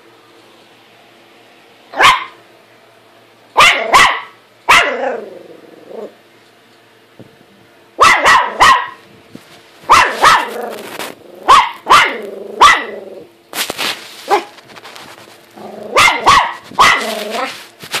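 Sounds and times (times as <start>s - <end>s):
small dog barking: 1.9s - 2.4s, 3.6s - 5.2s, 8.0s - 9.0s, 9.9s - 10.8s, 11.4s - 13.0s, 14.3s - 14.6s, 15.8s - 17.5s.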